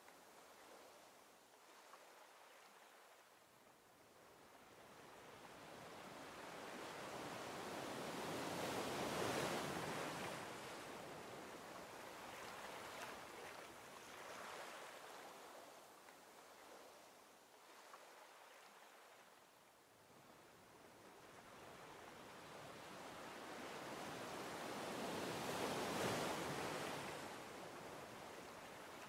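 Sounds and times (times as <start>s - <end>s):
ocean surf washing ashore: 23.0s - 29.0s.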